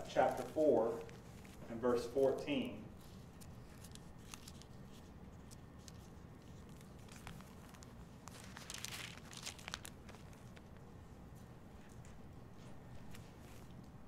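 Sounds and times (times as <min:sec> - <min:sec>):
thin pages turning: 0:00.1 - 0:10.8.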